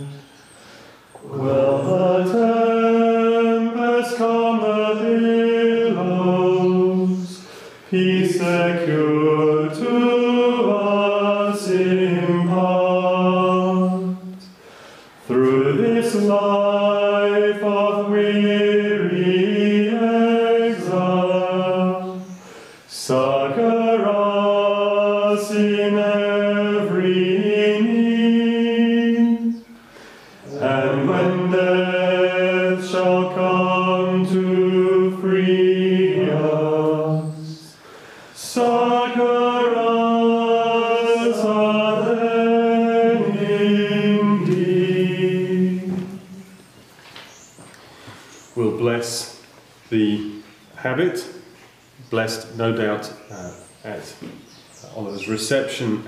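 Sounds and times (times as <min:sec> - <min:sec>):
men singing plainchant: 0:00.0 - 0:00.3, 0:01.2 - 0:14.4, 0:15.2 - 0:29.6, 0:30.4 - 0:46.5.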